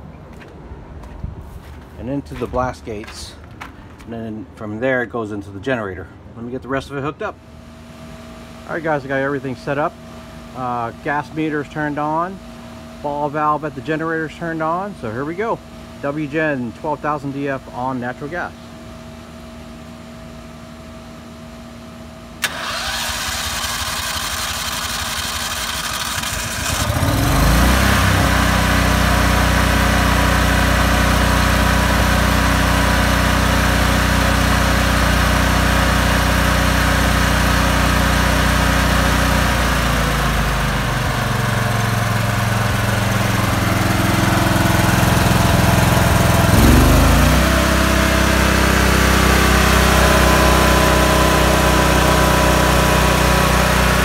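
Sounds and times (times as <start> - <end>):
generator engine running: 4.7 - 54.0
electric starter cranking: 22.4 - 29.0, 43.3 - 54.0.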